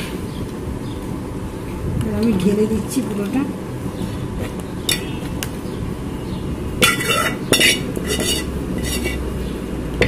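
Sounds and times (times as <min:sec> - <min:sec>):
utensil scraping against a pot: 0:06.8 - 0:09.4.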